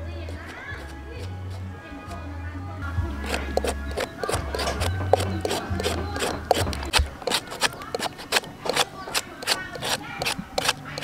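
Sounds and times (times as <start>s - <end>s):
peeler scraping potato: 0.0s - 2.2s, 2.9s - 11.0s.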